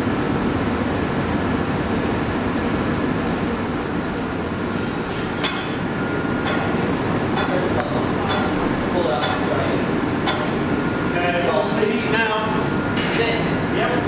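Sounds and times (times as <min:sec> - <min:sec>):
furnace roaring: 0:00.0 - 0:14.0.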